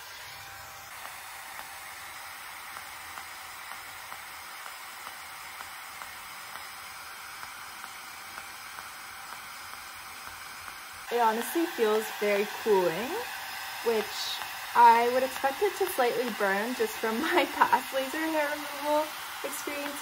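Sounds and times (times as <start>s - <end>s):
cooling fan hiss: 0.0s - 20.0s
soft flash clicks: 2.6s - 11.5s.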